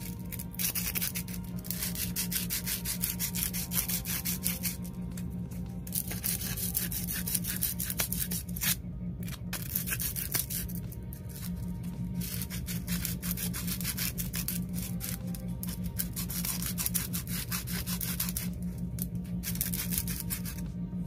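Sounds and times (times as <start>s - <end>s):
sandpaper rubbing on metal: 0.0s - 4.8s, 5.9s - 8.8s, 9.6s - 10.7s, 12.2s - 18.6s, 19.4s - 20.7s.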